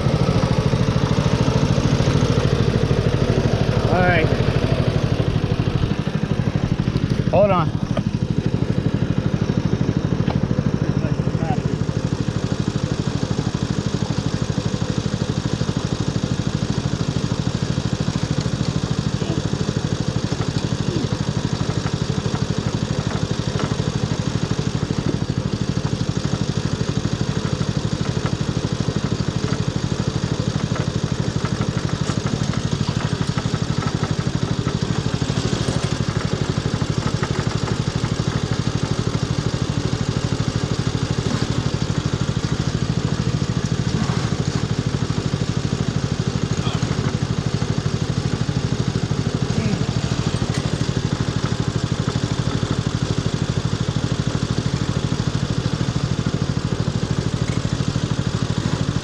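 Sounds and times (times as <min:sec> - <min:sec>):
mower engine idling: 0:00.0 - 0:59.0.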